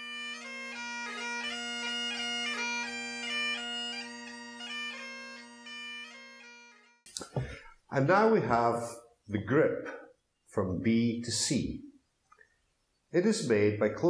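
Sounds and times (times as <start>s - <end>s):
bagpipe playing a tune: 0.0s - 7.0s.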